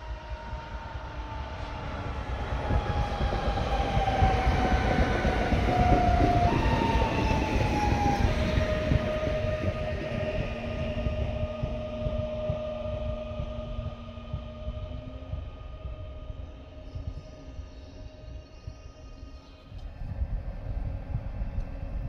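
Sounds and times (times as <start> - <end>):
high whine dropping in pitch: 0.0 - 18.1
train wheels rumbling on rail: 0.1 - 14.8.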